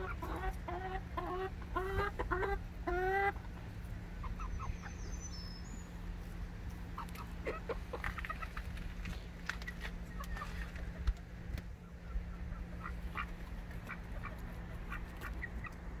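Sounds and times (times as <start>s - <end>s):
ducks quacking: 0.0s - 3.6s, 4.2s - 5.0s, 7.0s - 8.7s, 11.8s - 16.0s.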